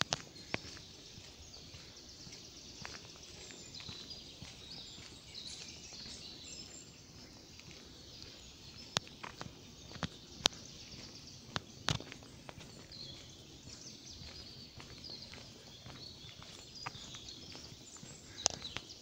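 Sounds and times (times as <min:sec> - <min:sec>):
birds singing: 0:00.0 - 0:19.0
footsteps on gravel: 0:00.0 - 0:19.0.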